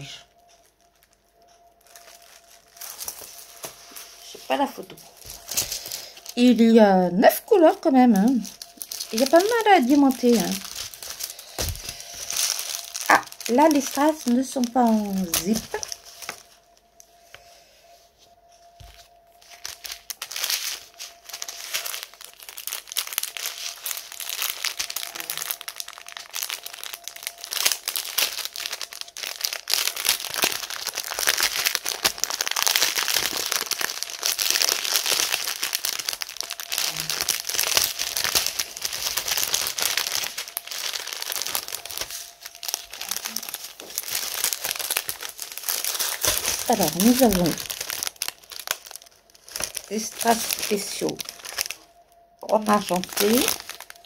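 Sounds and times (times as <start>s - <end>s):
plastic bags crinkling: 0.0s - 17.4s, 18.4s - 54.0s.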